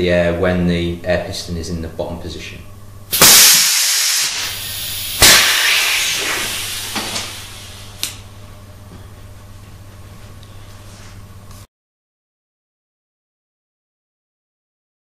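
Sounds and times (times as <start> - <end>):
compressed air exhausting: 3.1 - 8.2.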